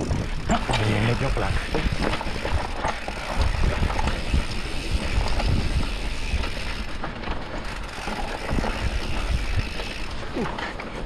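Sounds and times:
wind on microphone: 0:00.0 - 0:00.7, 0:01.6 - 0:06.5
bike rattling and knocking: 0:00.0 - 0:11.0
tyres rolling over loose dirt: 0:00.0 - 0:11.0.

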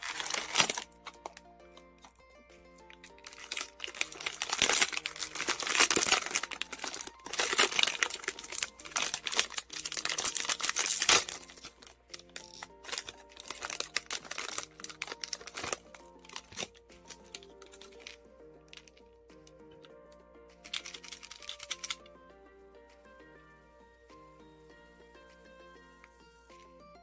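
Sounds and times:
foil bag crinkling: 0:00.0 - 0:02.2, 0:02.9 - 0:19.0, 0:20.6 - 0:22.0
background music: 0:00.0 - 0:27.0
handling clicks: 0:20.6 - 0:22.1.

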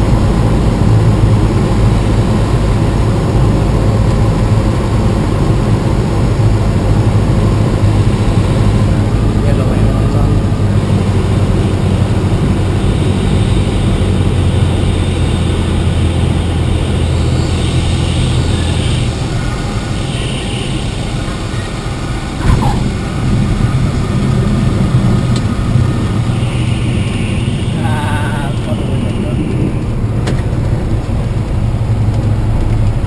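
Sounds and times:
aircraft piston engine and propeller: 0:00.0 - 0:33.0
wheels touching down thump: 0:22.4 - 0:23.0.

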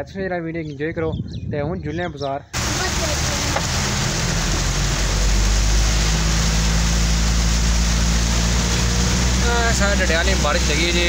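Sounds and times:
car driving hum: 0:02.6 - 0:11.0
heavy rain on car roof: 0:02.6 - 0:11.0.

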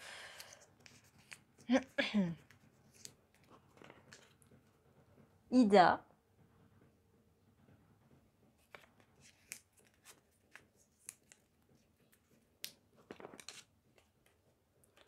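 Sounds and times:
paper crinkling while folded: 0:13.0 - 0:14.4.

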